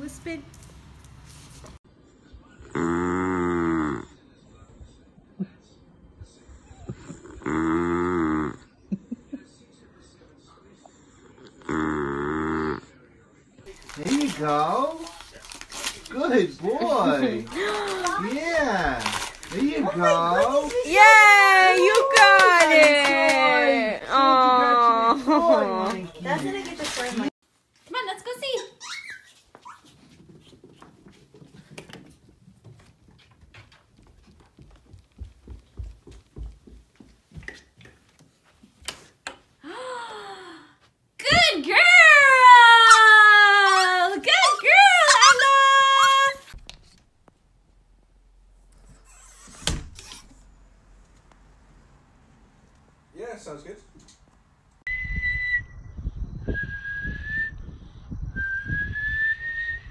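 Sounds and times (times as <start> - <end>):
footsteps on carpeted stairs: 29.3 - 39.5
person whistling: 54.9 - 55.8, 56.5 - 57.7, 58.3 - 59.9.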